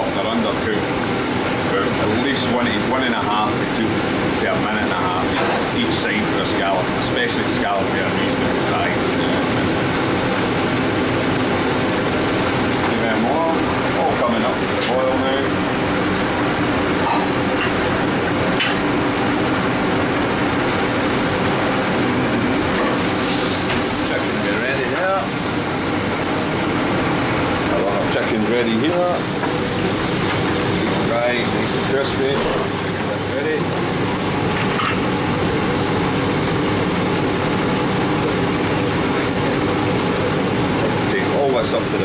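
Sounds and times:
kitchen equipment drone: 0.0s - 42.0s
sauce bubbling in a pan: 15.4s - 27.8s.

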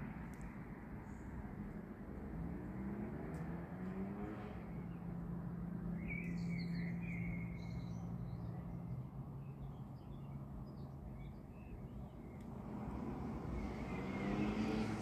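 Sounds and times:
small birds chirping: 5.8s - 15.0s.

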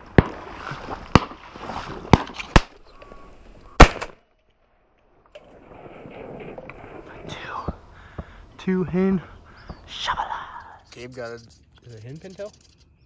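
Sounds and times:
shotgun shots: 1.1s - 1.4s, 3.8s - 4.2s.

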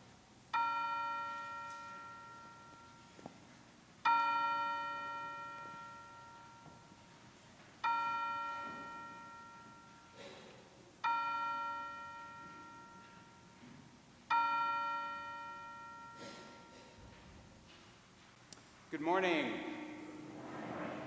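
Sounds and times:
bell ringing: 0.6s - 3.2s, 4.1s - 7.2s, 7.8s - 13.6s, 14.3s - 17.2s.

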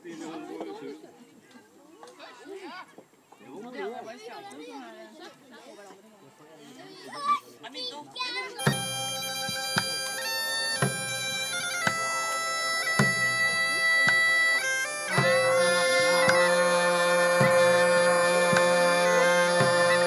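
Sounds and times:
bagpipes playing a tune: 8.6s - 20.0s.

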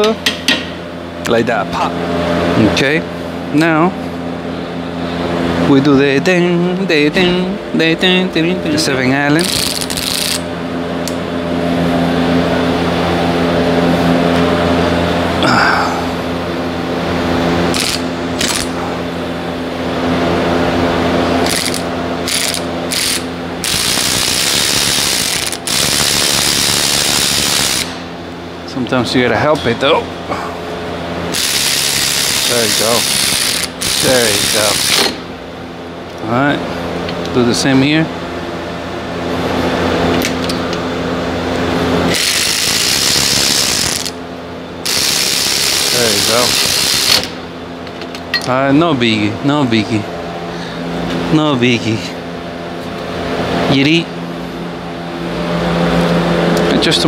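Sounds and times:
steady low hum: 0.0s - 57.0s
electric ratchet whirring: 9.4s - 11.2s, 17.7s - 18.7s, 21.4s - 28.0s, 31.3s - 35.2s, 42.1s - 44.2s, 44.8s - 47.4s.

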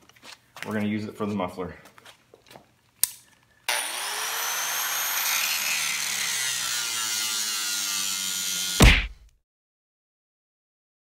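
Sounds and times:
angle grinder cutting metal: 3.7s - 9.2s.

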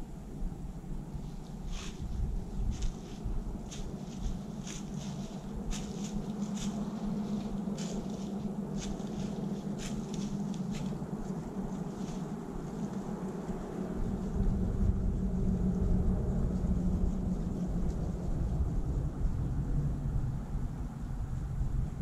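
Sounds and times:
steady low hum: 0.0s - 22.0s
footsteps in dry leaves: 1.2s - 15.0s.

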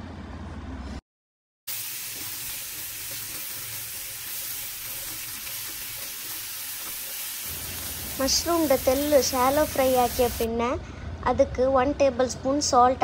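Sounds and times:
mushrooms sizzling in butter: 1.7s - 10.5s
spatula stirring in pan: 1.8s - 10.4s.

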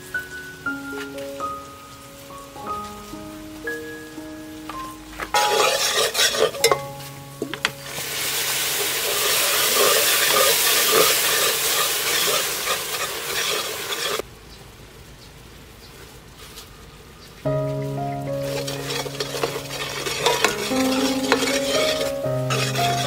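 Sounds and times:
sauce sizzling in a pot: 0.2s - 14.2s, 17.6s - 23.0s
metal spoon scraping a pot: 5.3s - 6.9s, 9.0s - 14.2s, 18.4s - 23.0s.

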